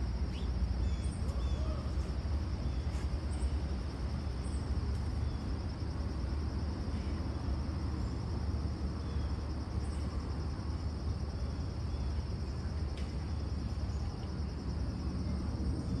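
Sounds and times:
constant low rumble: 0:00.0 - 0:16.0
insects trilling: 0:00.0 - 0:16.0
faint click: 0:13.0 - 0:13.2.

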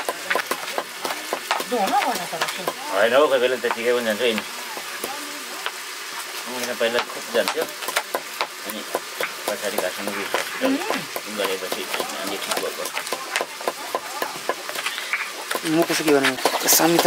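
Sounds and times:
knife chopping on cutting board: 0:07.0 - 0:14.7.

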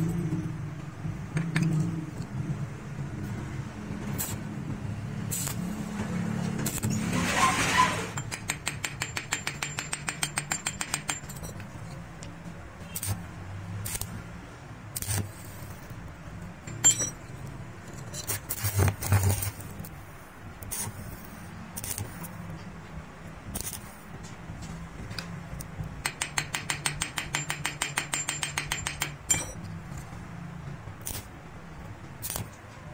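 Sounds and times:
rapid metal tapping on wrench: 0:08.2 - 0:11.7, 0:26.0 - 0:29.6
wrench clinking against stone: 0:08.2 - 0:12.0, 0:16.6 - 0:18.3, 0:26.0 - 0:29.8.

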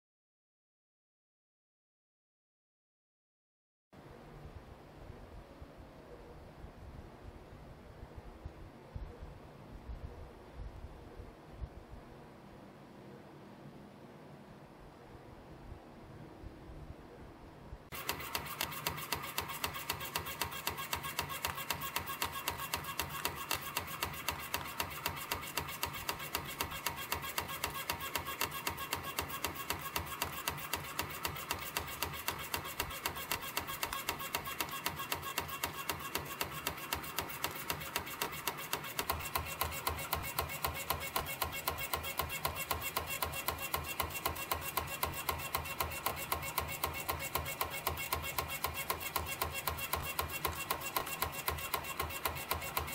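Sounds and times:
steady mechanical hum: 0:04.0 - 0:52.9
spring coiling machine clicking: 0:17.9 - 0:52.9.

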